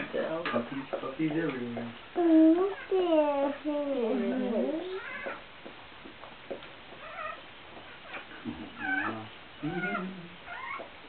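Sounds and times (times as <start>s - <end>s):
newborn puppies crying: 8.8s - 10.9s.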